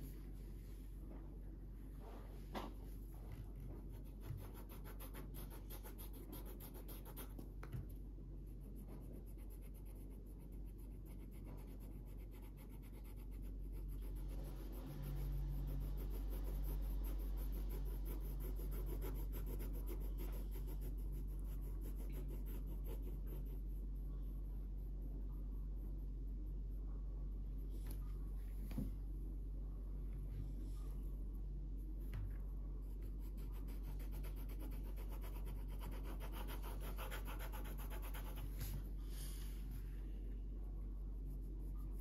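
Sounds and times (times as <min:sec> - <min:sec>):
low steady hum: 0:00.0 - 0:42.0
marker scratching on paper: 0:03.9 - 0:07.5, 0:08.5 - 0:23.9, 0:33.0 - 0:38.8.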